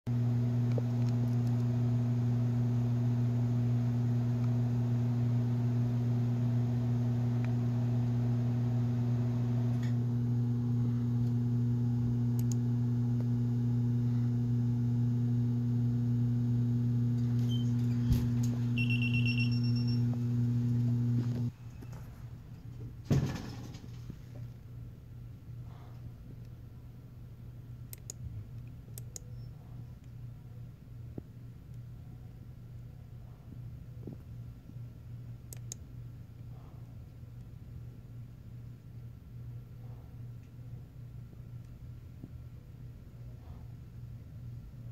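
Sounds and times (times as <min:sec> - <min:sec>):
low electrical hum: 0:00.1 - 0:44.9
high electronic beep: 0:18.8 - 0:20.0.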